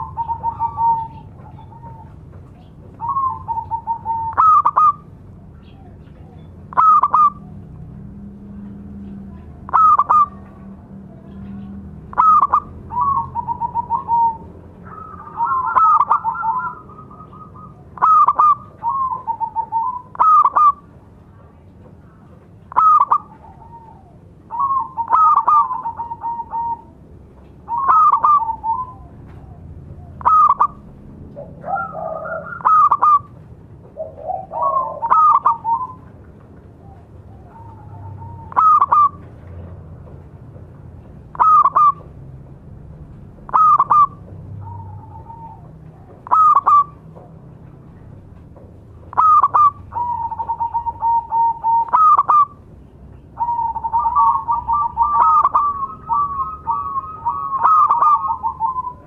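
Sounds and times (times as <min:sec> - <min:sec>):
dove cooing: 0:00.0 - 0:07.8, 0:09.0 - 0:20.9, 0:22.7 - 0:39.7, 0:41.3 - 0:42.1, 0:43.4 - 0:47.3, 0:49.0 - 0:59.0.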